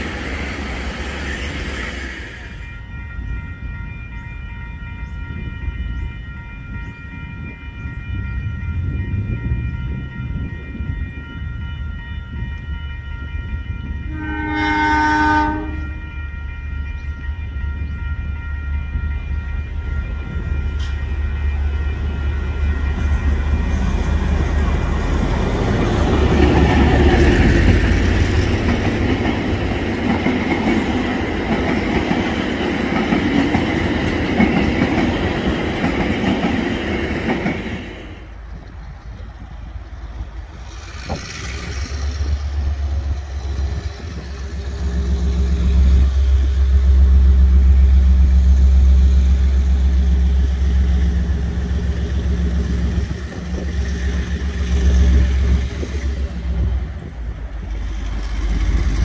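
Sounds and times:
locomotive engine rumbling: 0:00.0 - 0:59.0
train wheels clattering on rails: 0:19.2 - 0:47.2, 0:48.3 - 0:59.0.

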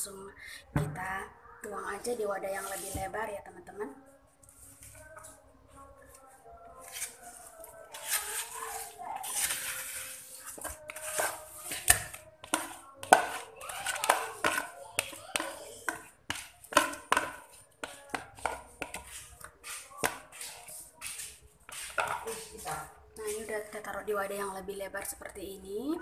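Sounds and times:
wet ice cream mixture squelching: 0:06.0 - 0:23.7
plastic bowls knocking and scraping: 0:06.9 - 0:22.9.

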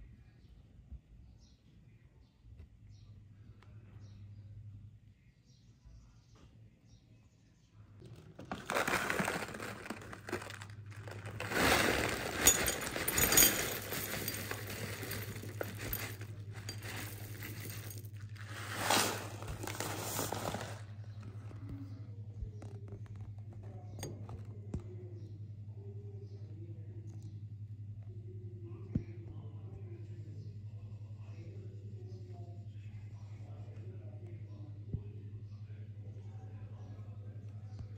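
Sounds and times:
low steady hum: 0:00.0 - 0:37.9
muesli rattling into a bowl: 0:08.1 - 0:20.8
bag rustling: 0:08.4 - 0:21.2.

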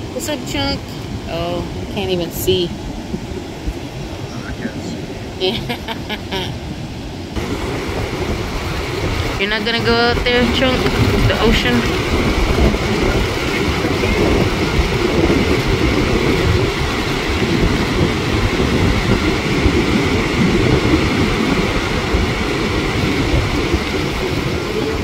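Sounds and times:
ocean surf breaking: 0:00.0 - 0:25.0
wind buffeting microphone: 0:00.0 - 0:25.0.

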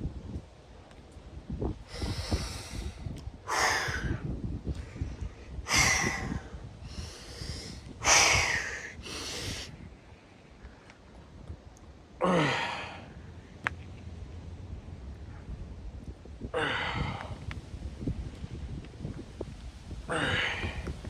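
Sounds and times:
man breathing hard: 0:01.9 - 0:09.8, 0:12.2 - 0:13.2, 0:16.5 - 0:17.5, 0:20.1 - 0:21.0
man sighing: 0:12.2 - 0:13.0, 0:16.5 - 0:17.4, 0:20.1 - 0:20.9.

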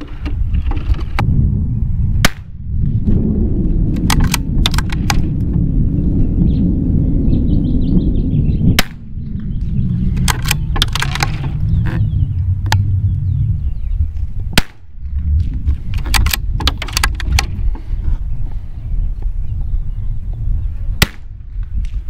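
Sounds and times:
wind rumbling on microphone: 0:00.0 - 0:22.0
rifle shots cracking: 0:04.0 - 0:05.3
birds chirping faintly: 0:06.1 - 0:14.5, 0:17.5 - 0:21.0
small clicks: 0:10.2 - 0:11.6, 0:15.9 - 0:17.6.

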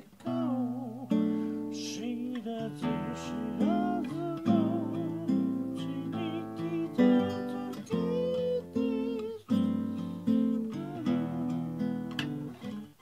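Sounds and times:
classical acoustic guitar chords: 0:00.0 - 0:13.0.

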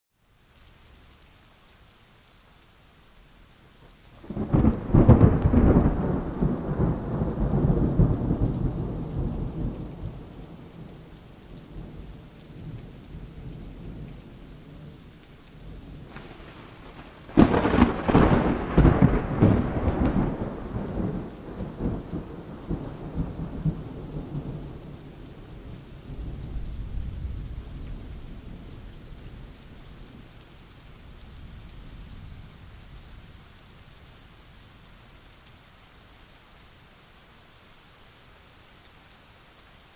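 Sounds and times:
steady rain: 0:00.1 - 0:39.9
thunder rumbling: 0:04.2 - 0:14.9, 0:15.6 - 0:30.2.

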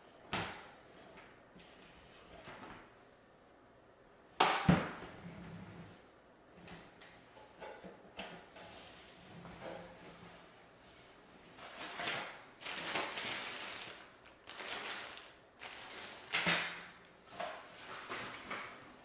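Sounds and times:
plastic bag crinkling: 0:11.7 - 0:17.0.

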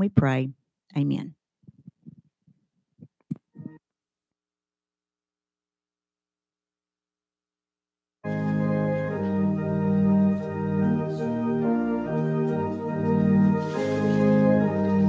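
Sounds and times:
organ playing slow chords: 0:08.2 - 0:15.0.

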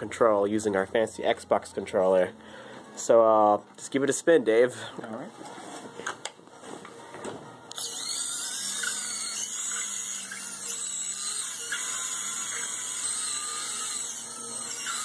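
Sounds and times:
small electric motors whining: 0:07.7 - 0:15.0.

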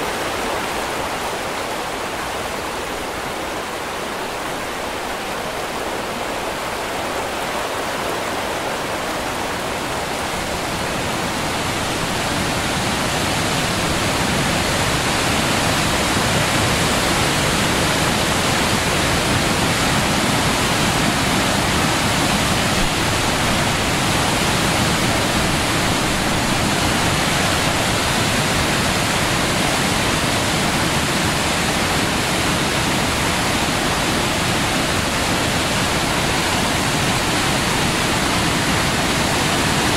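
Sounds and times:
waterfall roaring: 0:00.0 - 0:39.9.

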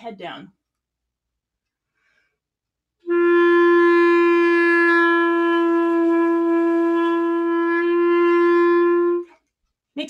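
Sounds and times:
clarinet long held note: 0:03.0 - 0:09.4.

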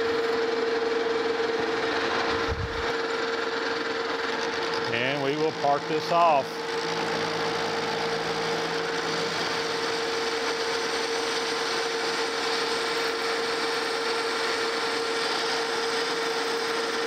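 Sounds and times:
metal lathe humming: 0:00.0 - 0:17.0
parting tool cutting metal: 0:04.2 - 0:13.4.

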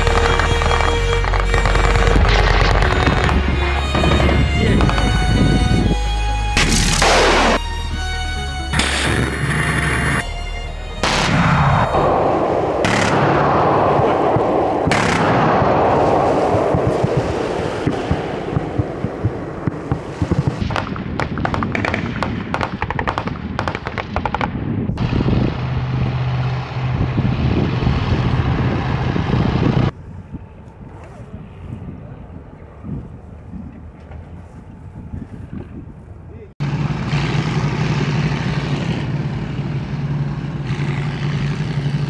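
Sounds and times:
launcher firing blasts: 0:00.0 - 0:05.1, 0:06.6 - 0:07.6, 0:08.7 - 0:10.2, 0:11.0 - 0:25.8.

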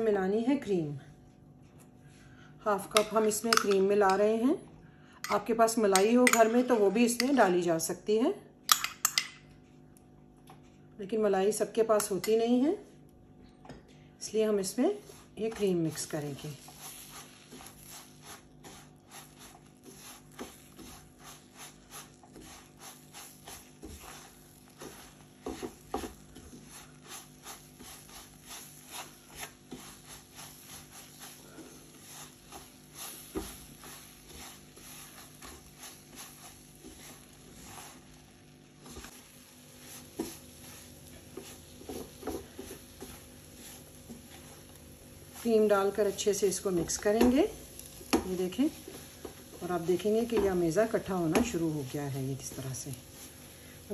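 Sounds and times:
spatula scraping a frying pan: 0:15.0 - 0:53.9.

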